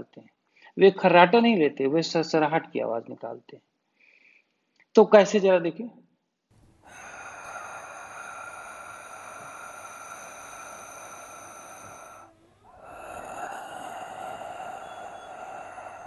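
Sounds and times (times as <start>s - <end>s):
hissing throat breathing: 6.6s - 16.0s.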